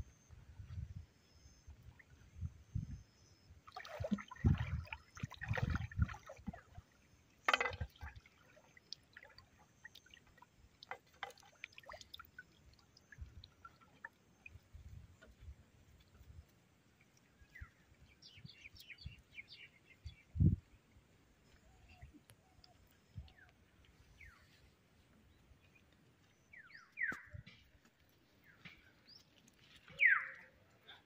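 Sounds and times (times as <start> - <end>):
water splashing and sloshing: 1.4 - 19.8
sharp splash: 3.6 - 6.4.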